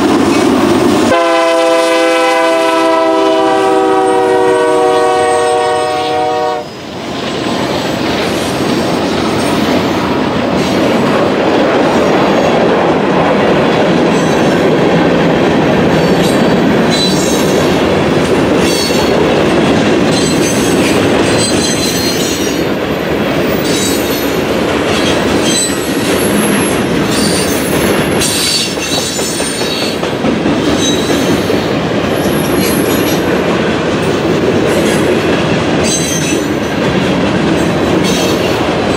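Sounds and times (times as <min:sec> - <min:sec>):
freight train wheels on rails: 0:00.0 - 0:38.9
locomotive horn: 0:01.1 - 0:06.8.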